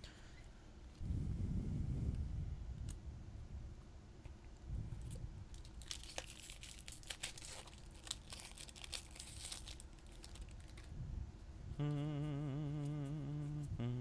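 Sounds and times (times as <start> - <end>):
foil wrapper tearing and crinkling: 5.5 - 10.9.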